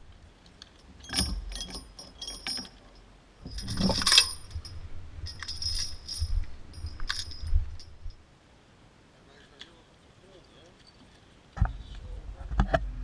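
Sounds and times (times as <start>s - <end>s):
metal lock chain clinking and rattling: 0.5s - 8.2s.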